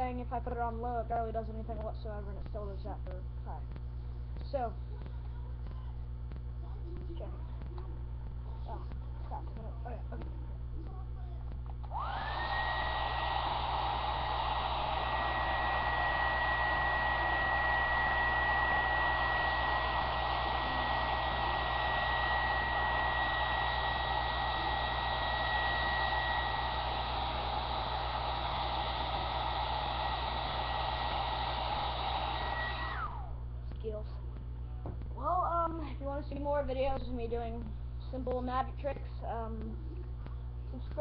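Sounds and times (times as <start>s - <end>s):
blow dryer running: 11.8s - 33.4s.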